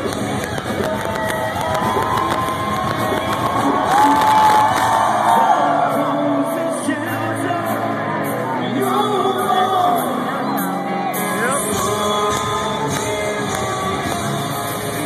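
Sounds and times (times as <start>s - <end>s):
distorted electric guitars: 0.0s - 15.0s
person singing: 3.6s - 15.0s.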